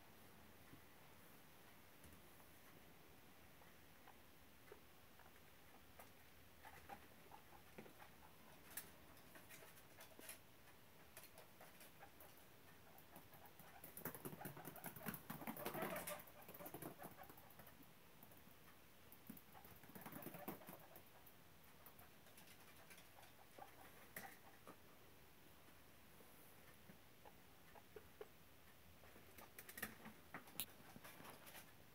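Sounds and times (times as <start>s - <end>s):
guinea pigs scurrying in shavings: 5.2s - 17.8s, 19.3s - 24.8s, 29.2s - 31.9s.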